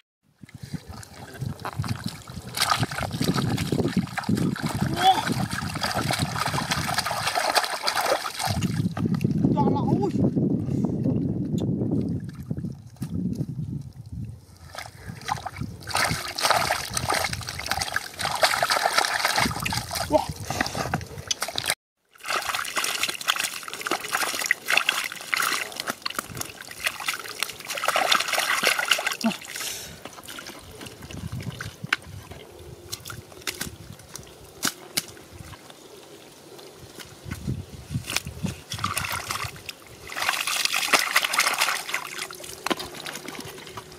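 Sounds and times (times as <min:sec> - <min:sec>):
muddy water dripping: 0:00.4 - 0:10.1, 0:11.0 - 0:43.9
mud and water splashing: 0:00.4 - 0:10.2, 0:11.9 - 0:43.9
sharp wet slaps: 0:01.8 - 0:08.8, 0:15.2 - 0:20.0, 0:21.3 - 0:29.4, 0:32.9 - 0:35.6, 0:38.0 - 0:43.5.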